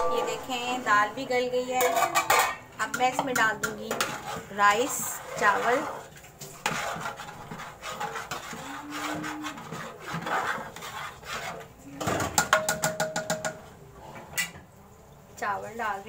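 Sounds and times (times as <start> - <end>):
spoon scraping against pot: 1.7 - 14.5
rice rustling and scraping in pot: 3.9 - 11.8.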